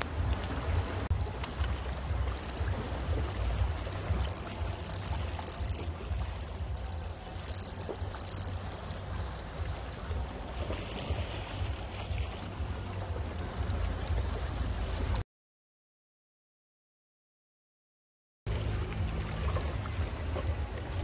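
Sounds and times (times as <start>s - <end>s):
fishing reel clicking whir: 2.5s - 9.1s, 10.1s - 11.4s.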